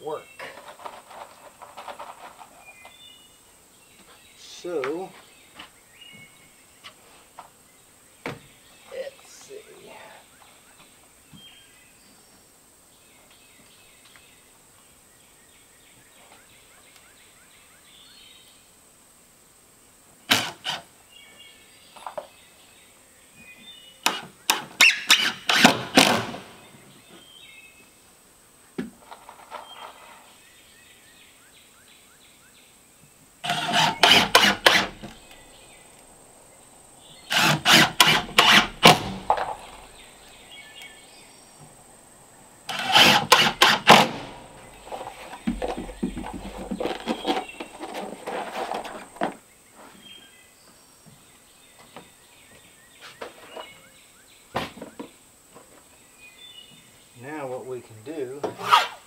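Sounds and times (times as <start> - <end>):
cordless drill driving screws: 24.1 - 26.1, 33.4 - 35.2, 37.3 - 39.5, 42.7 - 44.3
wood handling and knocks: 37.3 - 40.0, 42.7 - 49.4.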